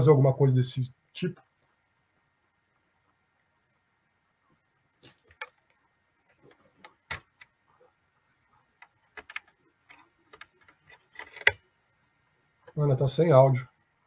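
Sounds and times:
faint irregular clicks: 4.5s - 11.8s.

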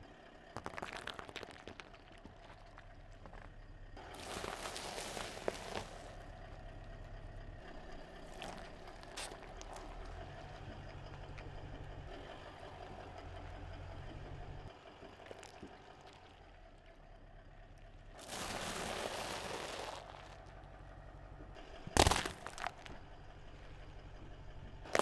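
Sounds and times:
car rumbling slowly: 0.0s - 25.0s
tyre crunching food: 0.6s - 6.2s, 8.1s - 10.2s, 15.1s - 16.3s, 18.2s - 20.5s, 21.9s - 23.0s.

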